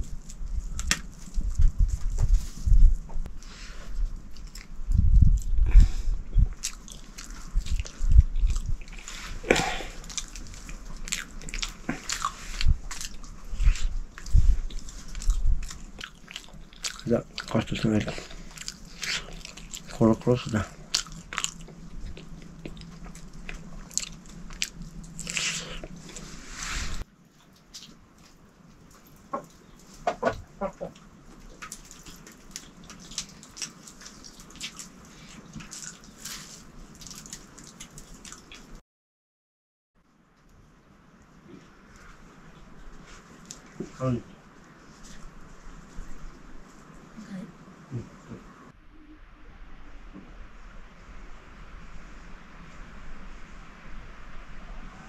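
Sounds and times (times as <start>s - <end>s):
person biting and chewing food: 0.0s - 30.0s, 30.9s - 38.8s.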